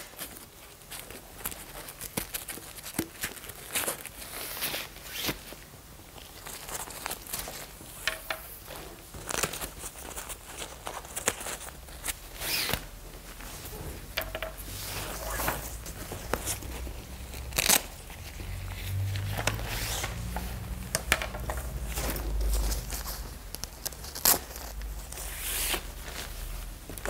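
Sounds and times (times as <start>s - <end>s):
fabric rustling and scraping: 0.0s - 27.0s
sharp ripping sounds: 14.7s - 20.3s.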